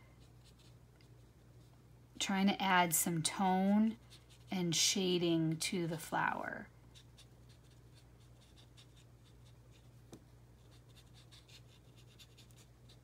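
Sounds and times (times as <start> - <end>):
low steady hum: 0.0 - 13.0
marker scratching on card: 0.2 - 1.4, 3.6 - 4.6, 6.9 - 13.0.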